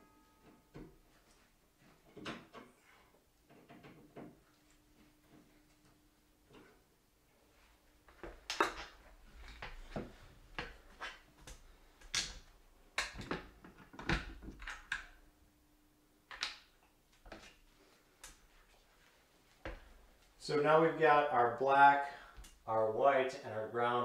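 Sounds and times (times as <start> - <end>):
clicks and rattles of wiring work: 0.4 - 6.9, 8.1 - 15.2, 16.3 - 17.6.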